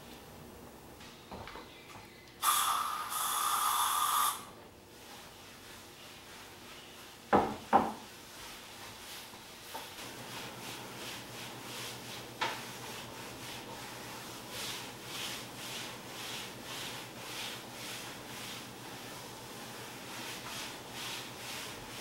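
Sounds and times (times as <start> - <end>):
knocks on wood: 7.4 - 8.0.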